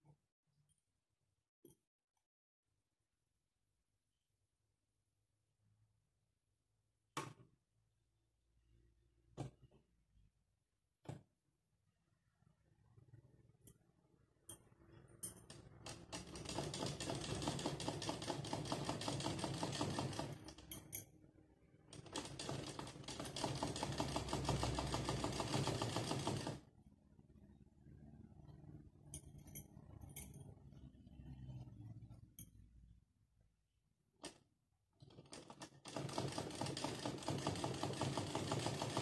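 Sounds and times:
sewing machine needle clatter: 0:15.2 - 0:21.0, 0:21.9 - 0:26.6, 0:35.0 - 0:39.0.

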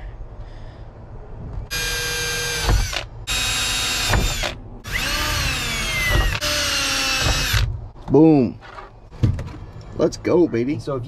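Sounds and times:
cordless drill whining: 0:01.7 - 0:07.7.

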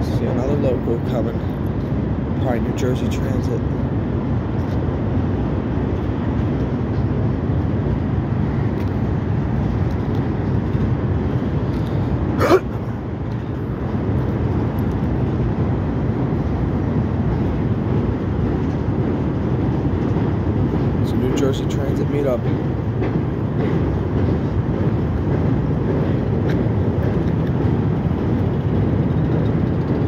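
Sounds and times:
freight train rolling over bridge: 0:00.0 - 0:30.0.

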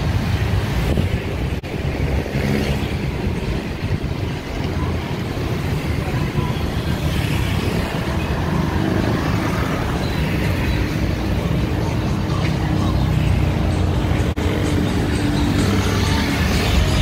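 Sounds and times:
cars and vans driving past: 0:00.0 - 0:17.0.

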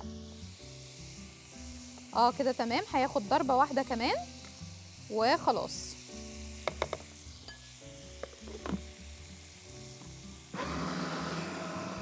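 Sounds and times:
chicken sizzling on grill pan: 0:00.0 - 0:12.0
food processor motor running: 0:10.5 - 0:12.0.

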